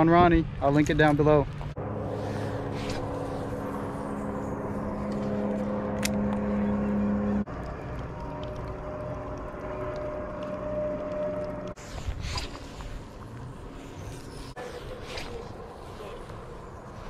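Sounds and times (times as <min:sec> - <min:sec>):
higher steady hum: 0:01.7 - 0:11.8.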